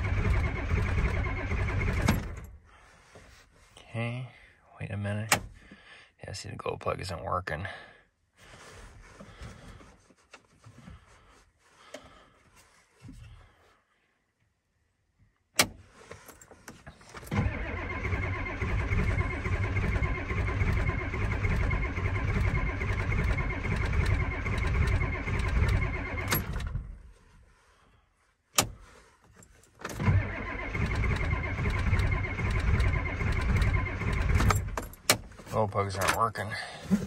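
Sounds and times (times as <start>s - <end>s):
diesel engine cranking: 0.0s - 2.6s, 16.8s - 26.9s, 29.8s - 37.0s.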